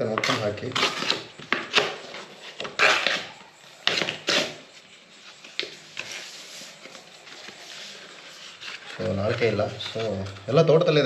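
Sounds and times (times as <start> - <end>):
paper crinkling and rustling: 5.3 - 11.0.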